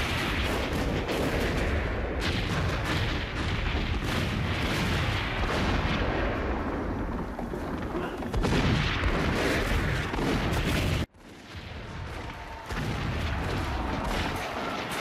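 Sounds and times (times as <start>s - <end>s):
cannon fire booms: 0.0s - 15.0s.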